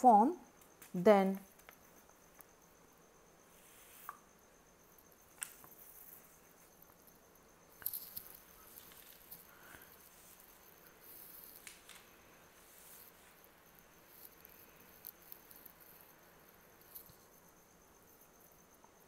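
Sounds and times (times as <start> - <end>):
faint high whine: 0.0 - 19.0
soft clicks and rustles: 4.9 - 17.4.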